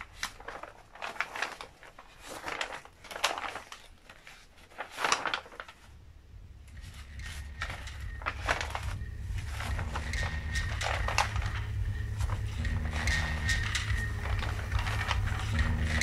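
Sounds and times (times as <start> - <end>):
paper pages turning: 0.0 - 16.0
low rumble: 5.8 - 16.0.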